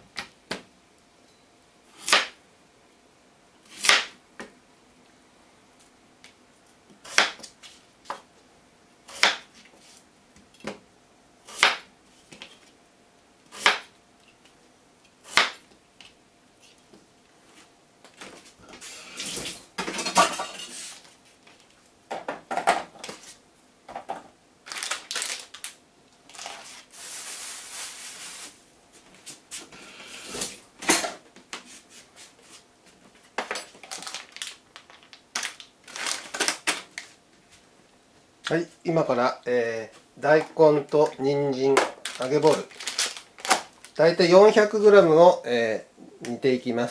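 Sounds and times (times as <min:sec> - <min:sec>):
knife chopping on cutting board: 0:09.1 - 0:09.5, 0:11.5 - 0:11.9, 0:13.5 - 0:13.9.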